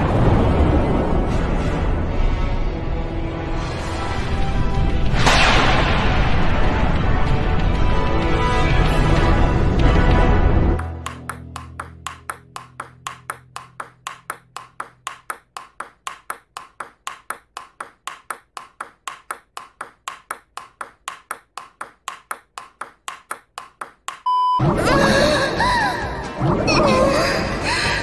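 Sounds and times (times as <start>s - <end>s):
table tennis ball clicking: 10.8s - 24.3s.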